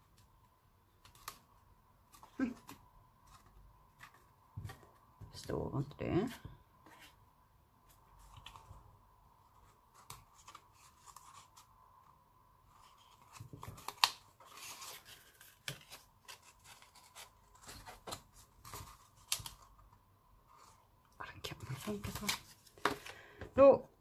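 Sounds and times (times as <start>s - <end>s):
card rustling and scraping: 9.4s - 19.8s.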